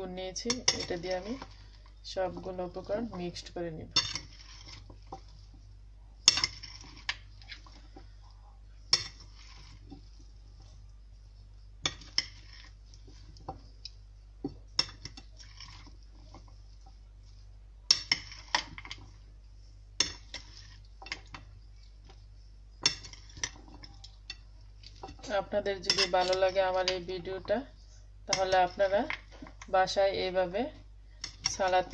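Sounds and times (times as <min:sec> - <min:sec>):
spoons clinking against ceramic bowl: 0:06.2 - 0:07.6, 0:22.8 - 0:27.0.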